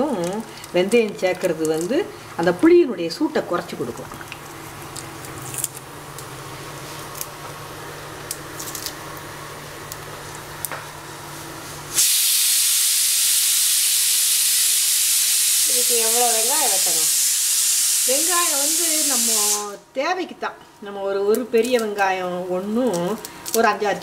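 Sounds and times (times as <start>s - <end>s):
loud steady hiss: 11.9s - 19.9s.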